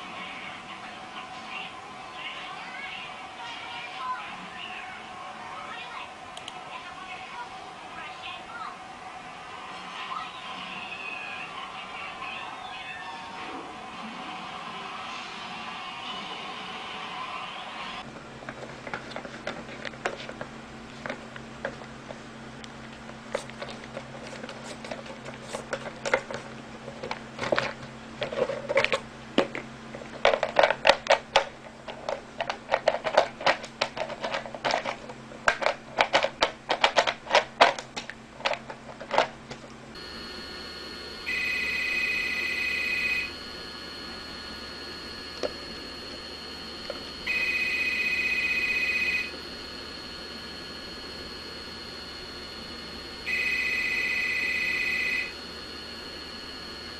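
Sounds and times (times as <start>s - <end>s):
telephone ringing: 40.0s - 56.9s.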